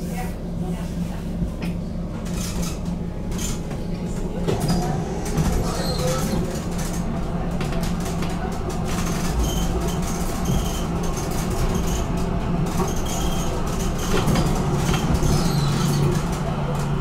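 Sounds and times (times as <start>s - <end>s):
tram running with steady hum: 0.0s - 17.0s.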